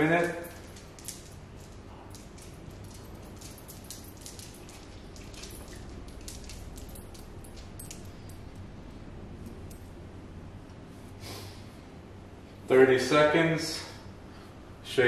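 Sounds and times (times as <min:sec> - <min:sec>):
steady low hum: 0:00.0 - 0:15.0
dog claws clicking on hard floor: 0:00.1 - 0:08.2.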